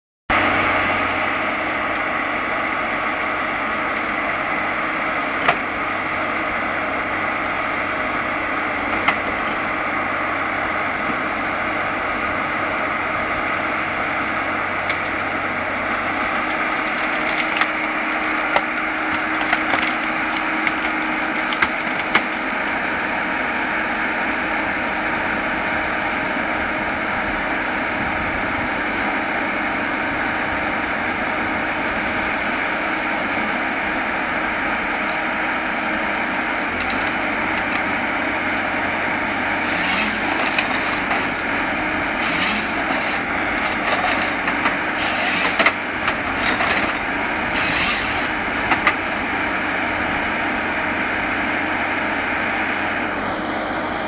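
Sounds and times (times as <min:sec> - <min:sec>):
diesel engine and hydraulics: 0:00.3 - 0:54.0
wood cracking and snapping: 0:15.9 - 0:22.8, 0:36.3 - 0:37.9, 0:39.5 - 0:48.9.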